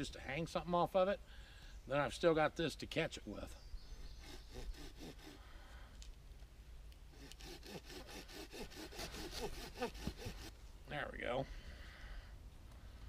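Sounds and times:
hand saw cutting wood: 0:04.2 - 0:05.4, 0:07.1 - 0:10.5.

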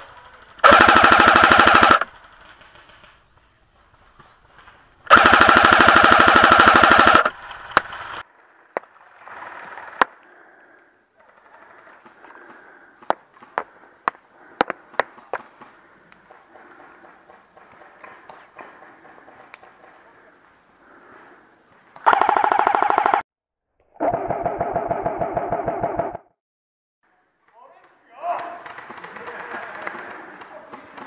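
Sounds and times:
airsoft rifle bursts: 0:00.2 - 0:02.1, 0:22.0 - 0:23.2.

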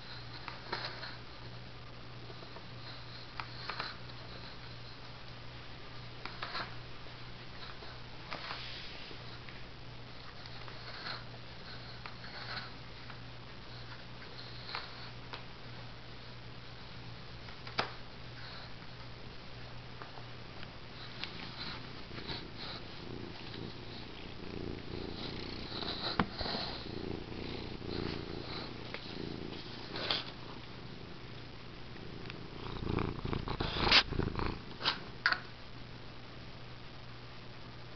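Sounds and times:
steady low hum: 0:00.0 - 0:37.9
cat purring: 0:20.9 - 0:35.4.

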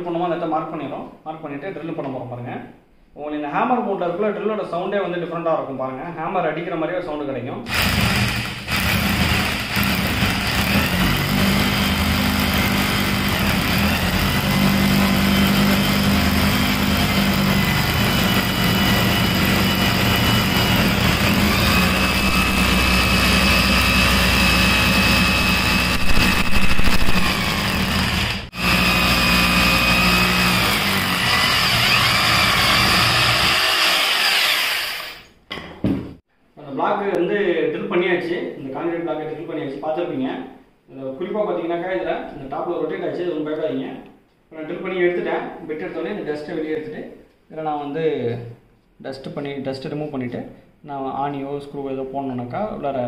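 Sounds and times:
hammer drill boring into concrete: 0:07.7 - 0:35.4.

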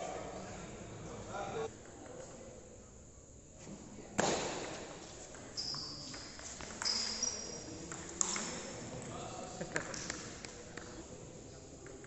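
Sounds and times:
shoes squeaking on floor: 0:05.4 - 0:07.7.

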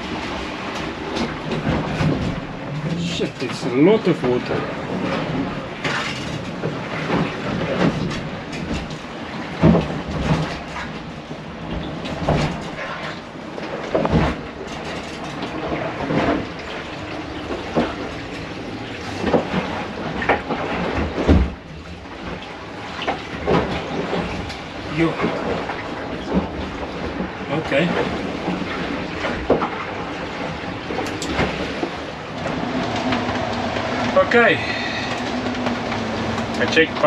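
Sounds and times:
boat rattling: 0:00.0 - 0:37.0
water rushing: 0:00.0 - 0:37.0
hull knocks and thuds: 0:04.3 - 0:27.4.

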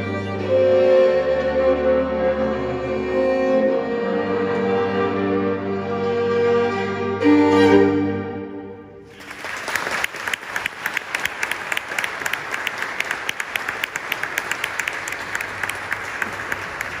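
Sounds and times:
fiddles and double bass chord: 0:00.0 - 0:08.8
audience applause: 0:09.1 - 0:17.0.

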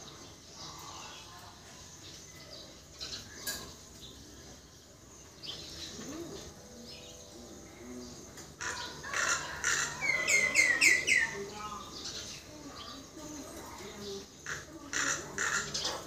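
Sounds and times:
myna calling: 0:08.6 - 0:16.0.

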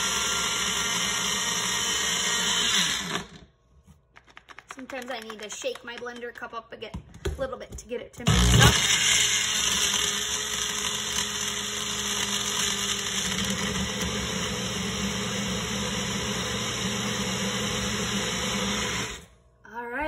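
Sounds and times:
blender motor running: 0:00.0 - 0:03.4, 0:08.3 - 0:19.3.

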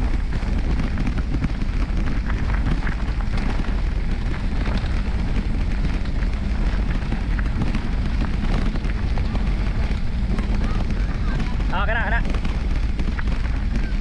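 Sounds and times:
bike tyres crunching on gravel: 0:00.0 - 0:14.0
wind rumbling on microphone: 0:00.0 - 0:14.0.

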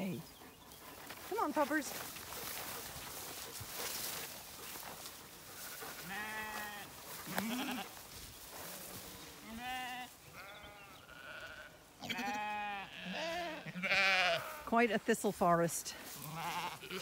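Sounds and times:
sheep bleating: 0:05.6 - 0:08.0, 0:09.4 - 0:14.7, 0:16.2 - 0:17.0.

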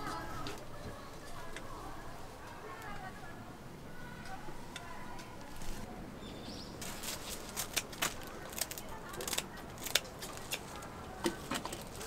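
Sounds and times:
scissors snipping crisp batter: 0:06.8 - 0:12.0.

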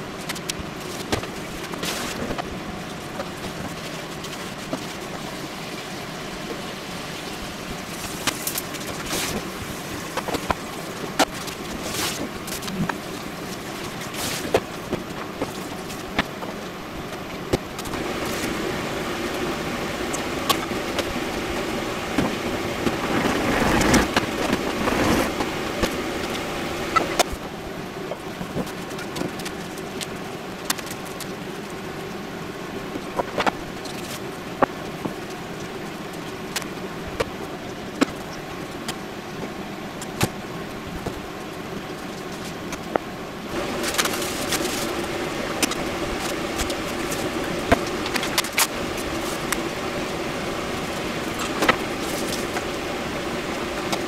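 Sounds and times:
rustling noise: 0:00.0 - 0:05.6, 0:07.8 - 0:18.7, 0:20.5 - 0:32.0, 0:40.7 - 0:54.0
steady low hum: 0:00.0 - 0:54.0.

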